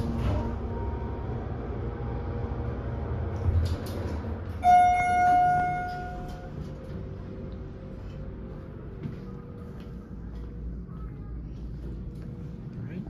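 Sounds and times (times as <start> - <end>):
elevator running hum: 0.0 - 13.0
elevator stopping clicks: 3.3 - 7.6
elevator arrival chime: 4.5 - 7.4.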